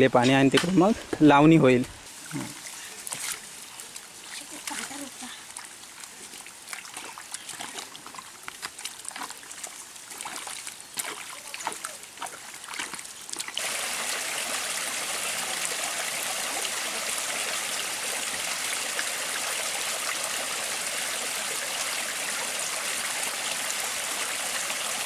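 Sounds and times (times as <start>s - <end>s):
water trickling over rocks: 2.0s - 25.0s
digging in wet soil: 2.1s - 13.7s.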